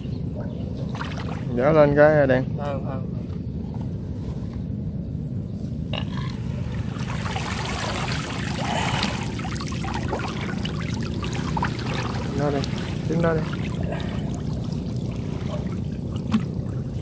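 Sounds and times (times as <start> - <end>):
water splashing and trickling: 0.0 - 1.8, 6.3 - 17.0
steady low rumble: 0.0 - 17.0.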